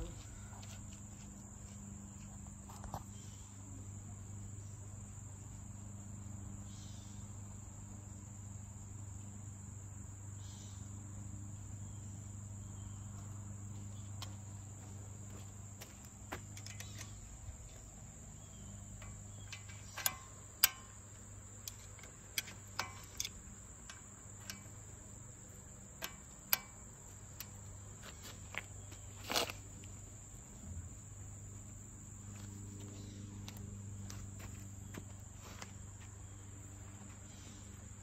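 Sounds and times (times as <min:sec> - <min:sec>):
high insect drone: 0:00.0 - 0:38.0
sharp metal clicks: 0:16.4 - 0:27.8.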